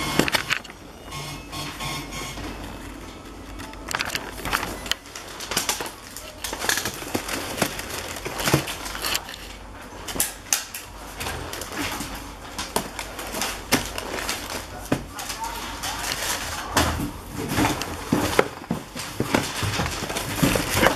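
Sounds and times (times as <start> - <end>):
tissue paper rustling: 3.5 - 10.1.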